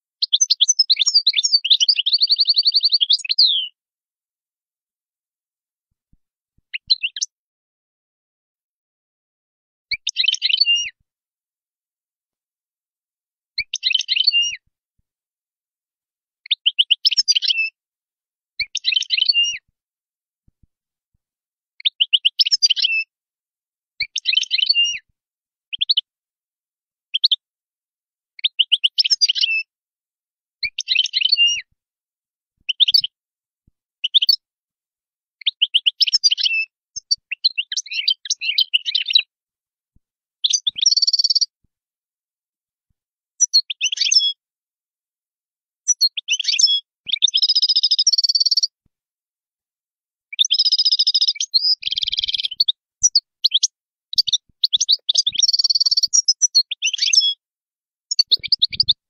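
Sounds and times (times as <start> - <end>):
goldfinch twittering: 40.6 - 41.5, 50.5 - 57.4, 58.1 - 59.0.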